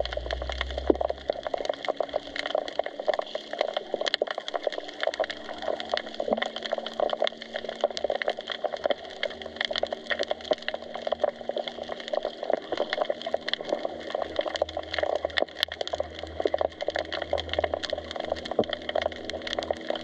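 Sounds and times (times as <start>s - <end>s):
underwater crackle of clicks and snaps: 0.0s - 20.0s.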